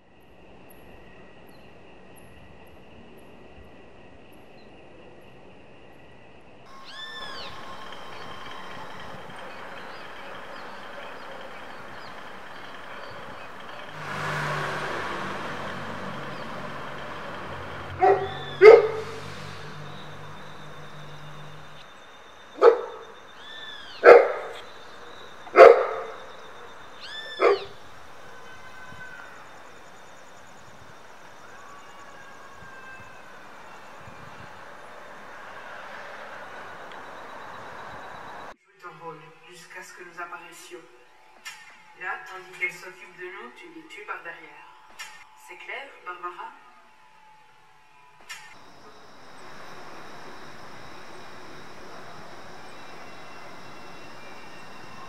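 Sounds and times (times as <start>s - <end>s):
steady background hiss: 0.0s - 55.0s
animal call rising and falling: 6.7s - 21.8s
dog barking: 18.0s - 19.2s, 22.6s - 23.1s, 24.0s - 24.6s, 25.5s - 26.2s, 27.4s - 27.8s
faint high chirps: 48.0s - 55.0s.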